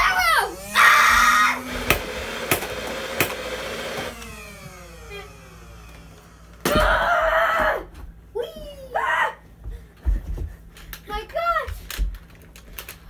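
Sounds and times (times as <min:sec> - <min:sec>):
small electric motor whirring: 0:00.3 - 0:06.7.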